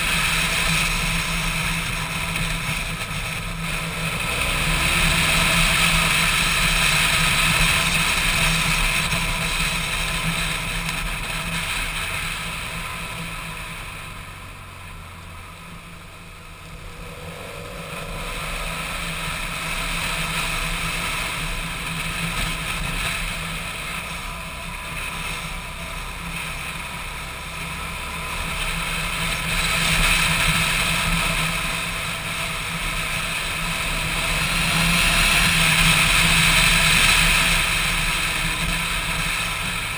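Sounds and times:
motorcycle engine running: 0:00.0 - 0:39.9
wind rushing over microphone: 0:16.2 - 0:24.4.

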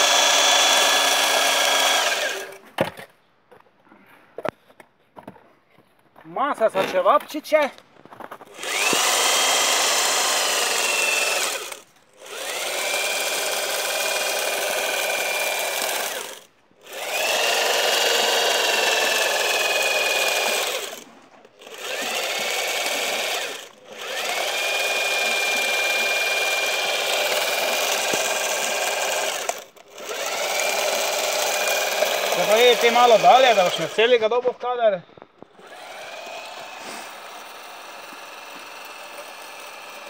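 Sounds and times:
mortar gun whirring hiss: 0:35.6 - 0:39.8.

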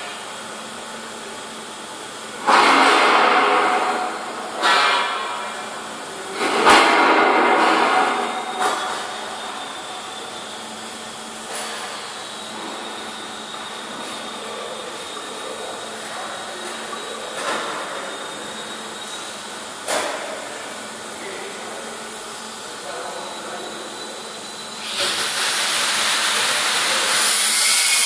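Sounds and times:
welding arc hissing: 0:24.8 - 0:28.0.

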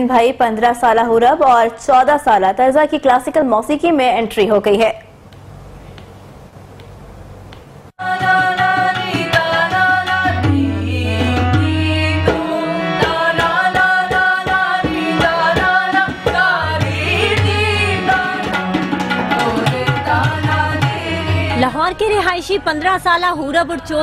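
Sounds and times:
people singing: 0:08.0 - 0:21.8
harmonium: 0:08.0 - 0:24.0
tabla playing: 0:08.0 - 0:24.0.

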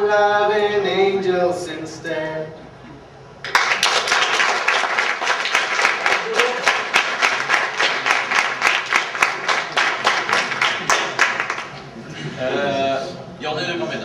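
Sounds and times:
audience applauding: 0:03.4 - 0:11.9.

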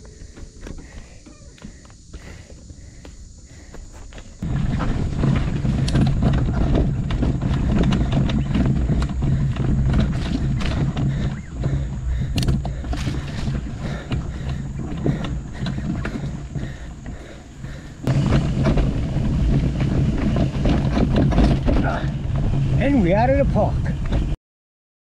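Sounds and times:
bike knocking and rattling: 0:00.0 - 0:24.4
tyres rumbling on dirt: 0:00.0 - 0:24.4
wind buffeting microphone: 0:04.4 - 0:24.4.

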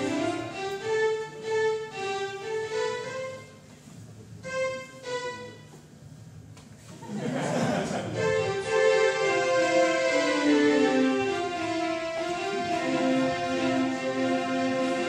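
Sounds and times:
synthesized violin-like notes: 0:00.0 - 0:03.6, 0:04.4 - 0:05.8, 0:08.1 - 0:15.0.

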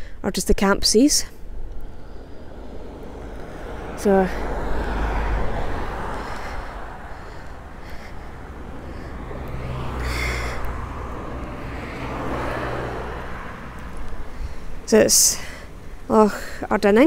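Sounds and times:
rush of tyres: 0:01.3 - 0:16.6
low engine hum: 0:01.4 - 0:16.6.

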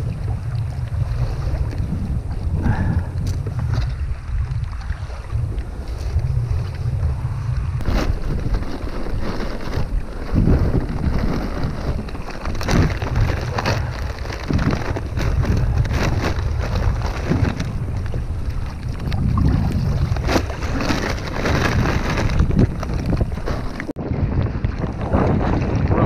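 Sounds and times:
wind buffeting microphone: 0:00.0 - 0:26.0
plastic bag crackling: 0:07.8 - 0:17.9, 0:20.0 - 0:23.9.

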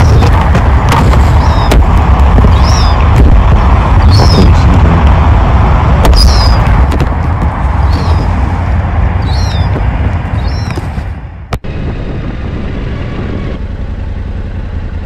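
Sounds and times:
loud low rumble: 0:00.0 - 0:15.0
gull calls: 0:01.2 - 0:01.8, 0:02.5 - 0:03.0, 0:04.0 - 0:04.6, 0:06.1 - 0:06.6, 0:07.9 - 0:08.4, 0:09.2 - 0:09.8, 0:10.4 - 0:10.8.

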